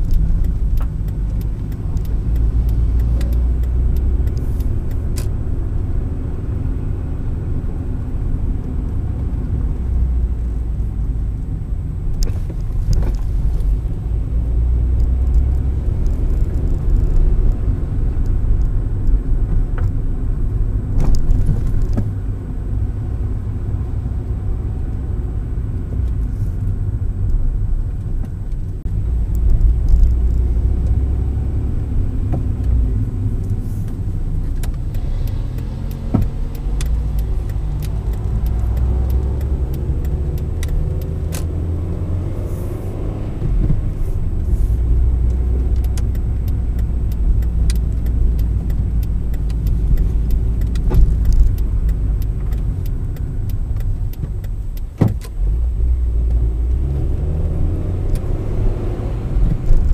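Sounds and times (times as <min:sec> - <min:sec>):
light clicks and rattles: 0:00.0 - 0:05.4, 0:32.2 - 0:41.6, 0:43.5 - 0:55.5
car road and engine rumble: 0:00.0 - 0:59.9.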